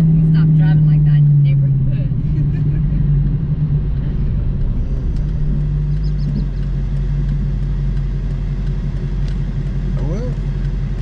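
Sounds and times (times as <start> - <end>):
car engine droning: 0.0 - 11.0.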